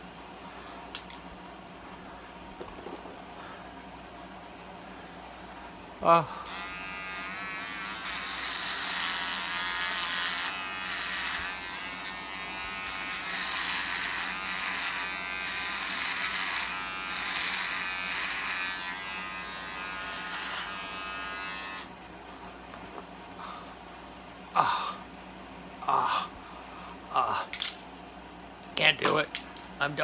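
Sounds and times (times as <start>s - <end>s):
electric trimmer buzzing: 6.4s - 21.9s.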